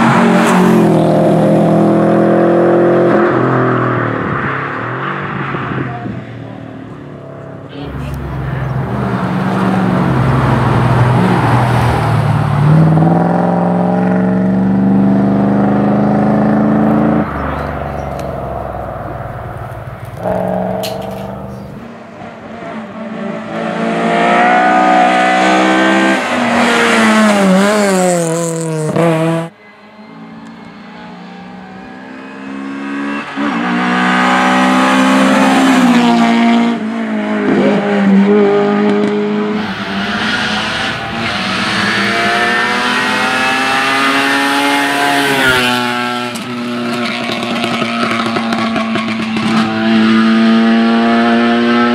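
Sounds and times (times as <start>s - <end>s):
race car engine accelerating: 0.0s - 51.9s
engine revving with quick shifts: 7.7s - 29.6s, 30.4s - 51.9s.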